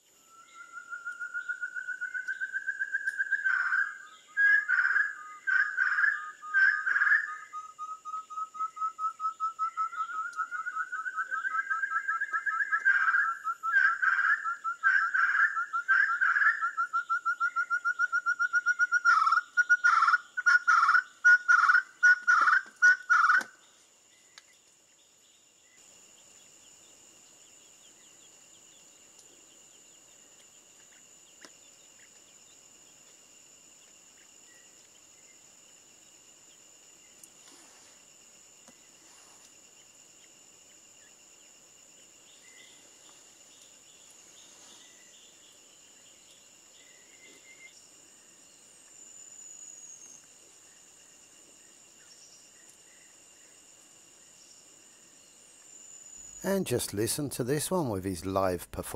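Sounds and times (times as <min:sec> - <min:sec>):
partridge calling: 0:03.1 - 0:23.5.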